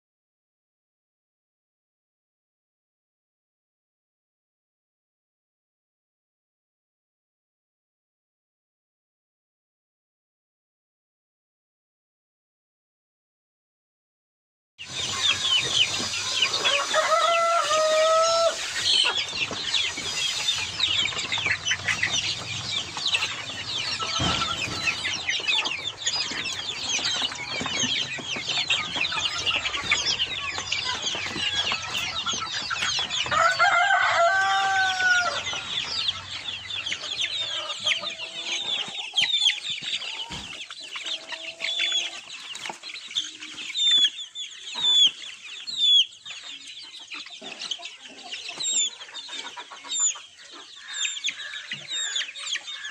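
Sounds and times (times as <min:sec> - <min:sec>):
chicks peeping: 0:14.8 - 0:52.9
lower chicken call: 0:15.0 - 0:27.8, 0:28.4 - 0:35.9.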